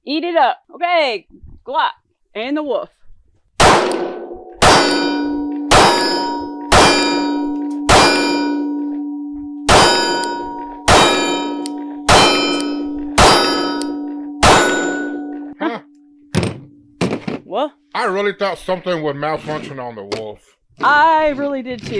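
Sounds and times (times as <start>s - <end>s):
pistol shots: 3.6s - 8.6s, 9.7s - 13.7s
metallic ring of steel target: 3.6s - 17.0s.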